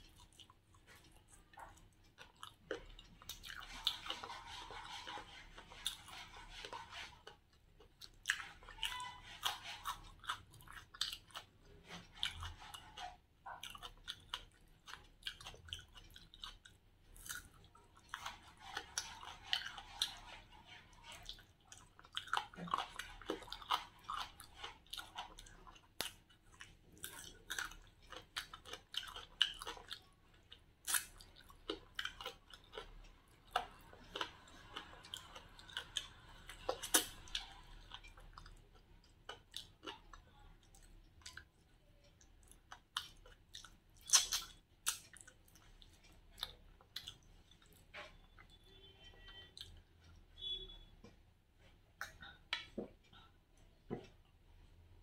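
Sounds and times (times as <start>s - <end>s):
chewing chicken: 0.0s - 50.6s
wet mouth clicks and smacks: 44.0s - 45.2s.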